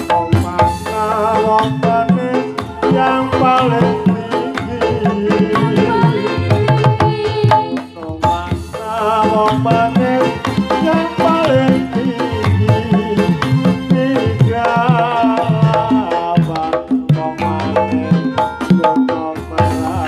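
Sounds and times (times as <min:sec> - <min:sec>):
wavering melody line: 0:01.0 - 0:08.1.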